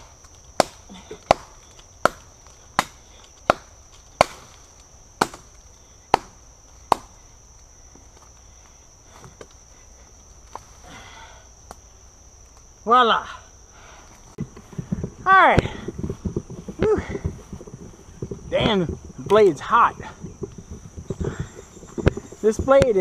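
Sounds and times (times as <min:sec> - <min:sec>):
knife chopping into wood: 0:00.0 - 0:04.6, 0:05.2 - 0:05.5, 0:06.1 - 0:07.2.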